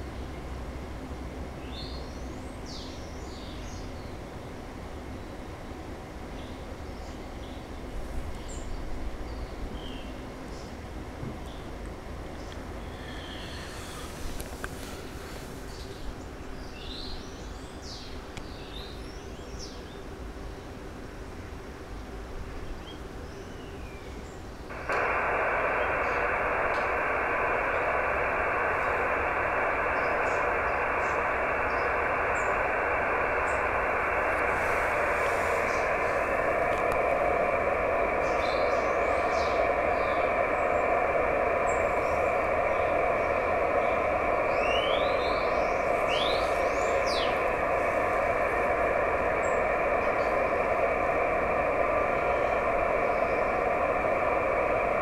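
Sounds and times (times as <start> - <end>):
radio receiver hiss: 12.5 - 17.4, 24.7 - 55.0.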